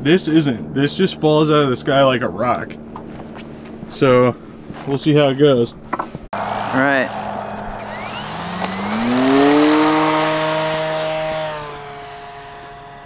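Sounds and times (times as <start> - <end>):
model plane motor whine: 6.4 - 13.0.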